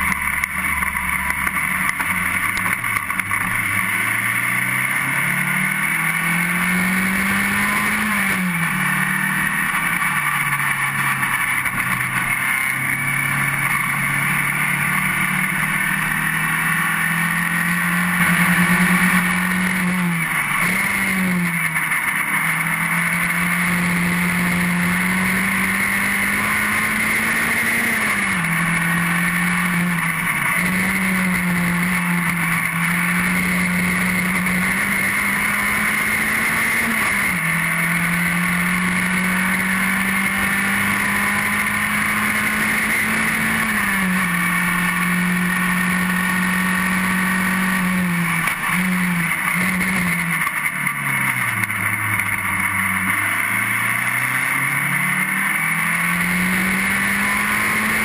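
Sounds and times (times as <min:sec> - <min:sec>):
racing car engine revving: 0:00.0 - 0:58.0.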